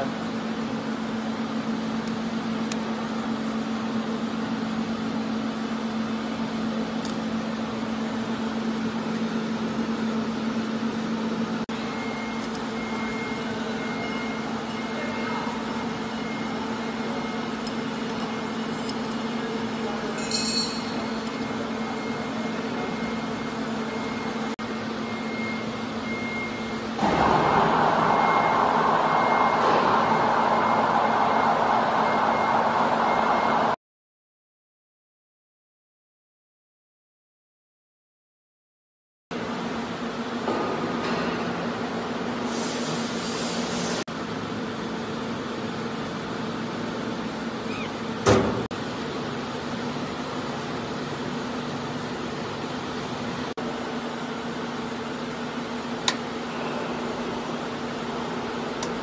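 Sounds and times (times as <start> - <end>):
factory machinery hum: 0.0 - 33.8, 39.4 - 59.0
machine humming: 11.7 - 33.8
steady low tone: 25.2 - 33.8
rushing machine noise: 27.0 - 33.8
hiss: 42.4 - 44.0.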